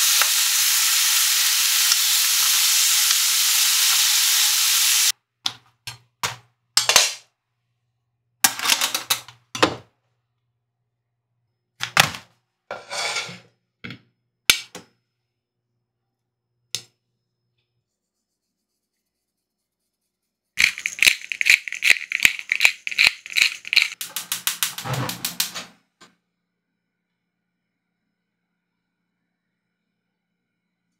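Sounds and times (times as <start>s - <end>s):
kitchen handling noises: 8.4s - 9.9s, 11.8s - 14.0s, 20.6s - 25.7s.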